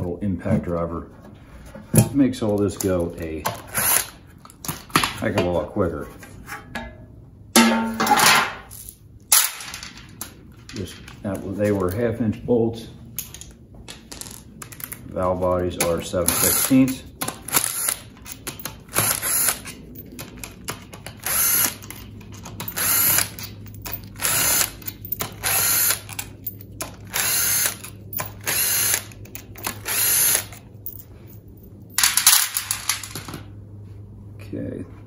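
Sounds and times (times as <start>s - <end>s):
cordless impact driver bursts: 16.3s - 16.8s, 18.9s - 19.6s, 21.2s - 21.8s, 22.8s - 23.4s, 24.2s - 24.8s, 25.4s - 26.1s, 27.1s - 30.5s.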